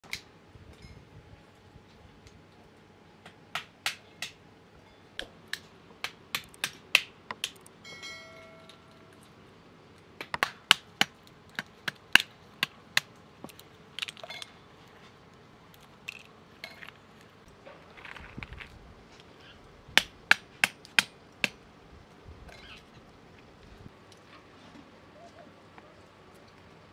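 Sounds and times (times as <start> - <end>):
hammer cracking walnuts: 5.5 - 7.7, 10.2 - 14.6.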